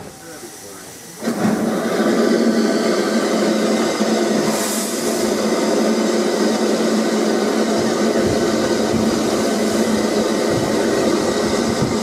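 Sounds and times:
steam locomotive releasing steam: 0.0s - 12.0s.

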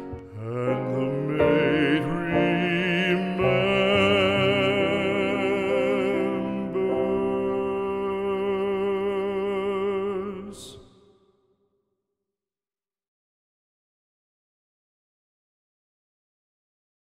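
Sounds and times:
classical art song singing: 0.0s - 11.5s.

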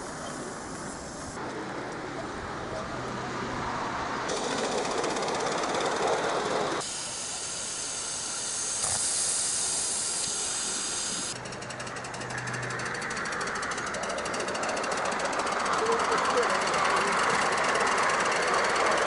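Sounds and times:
steam locomotive running: 0.0s - 19.0s
rapid fine pulsing: 4.3s - 19.0s
hiss of escaping steam: 6.8s - 11.4s.

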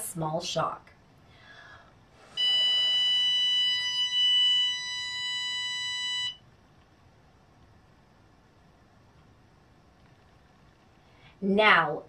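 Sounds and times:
steady electronic beep: 2.3s - 6.4s.

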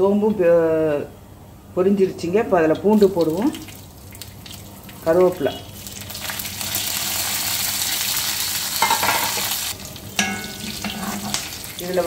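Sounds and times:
hot oil sizzling: 2.9s - 12.0s.

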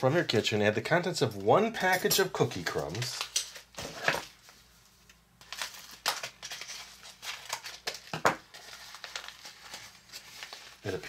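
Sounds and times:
packet crinkling and tearing: 5.4s - 11.0s.

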